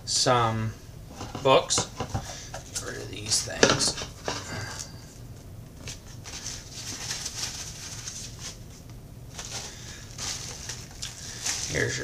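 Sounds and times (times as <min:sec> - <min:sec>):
plastic wrapping crinkling: 0:05.8 - 0:12.0.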